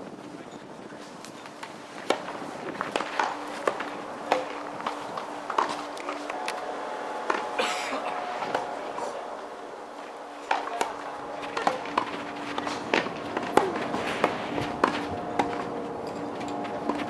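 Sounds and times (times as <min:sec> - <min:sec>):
players' footsteps: 0:00.2 - 0:17.0
tennis balls struck by rackets: 0:01.3 - 0:09.3, 0:10.1 - 0:17.0
balls bouncing on court: 0:02.0 - 0:06.0, 0:10.5 - 0:16.2.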